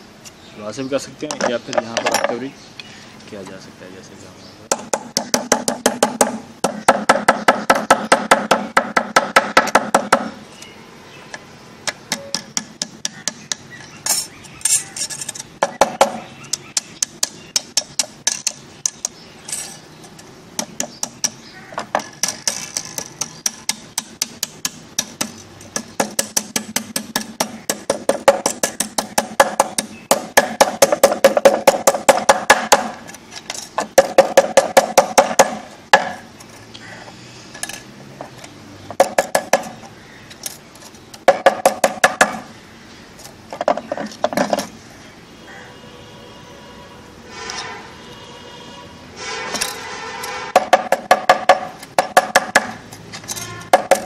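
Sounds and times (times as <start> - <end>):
hammer tapping metal strip: 11.9 - 19.2, 50.6 - 54.0.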